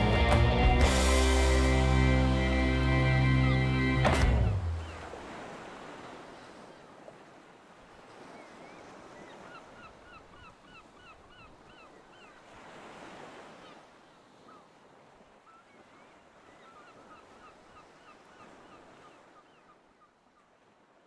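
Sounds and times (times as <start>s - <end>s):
faint ocean waves: 0.0s - 21.0s
wind: 0.0s - 21.0s
bird calls: 3.1s - 5.4s, 8.2s - 12.4s, 15.4s - 20.2s.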